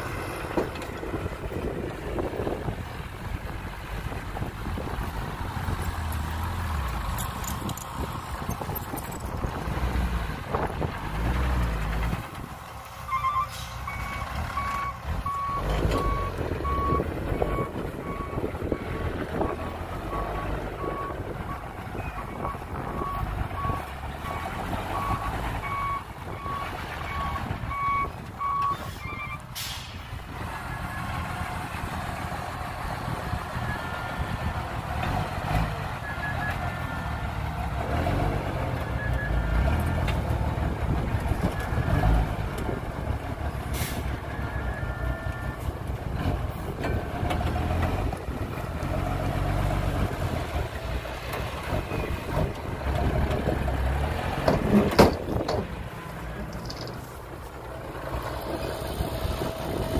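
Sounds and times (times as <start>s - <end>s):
diesel engines running: 0.0s - 59.9s.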